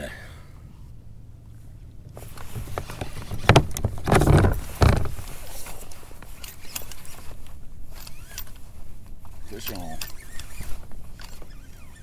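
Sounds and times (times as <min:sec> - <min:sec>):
gear knocking in kayak: 0:02.3 - 0:05.2.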